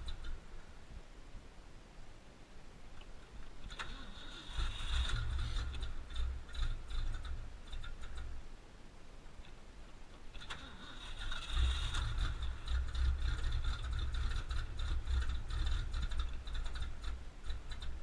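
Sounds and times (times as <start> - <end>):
rapid mechanical clicking: 0.0 - 0.4, 3.4 - 8.4, 10.3 - 18.0
engine low rumble: 0.0 - 18.0.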